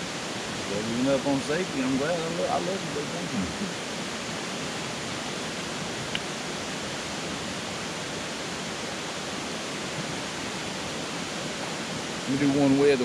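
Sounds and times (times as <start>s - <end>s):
river rapids rushing: 0.0s - 13.0s.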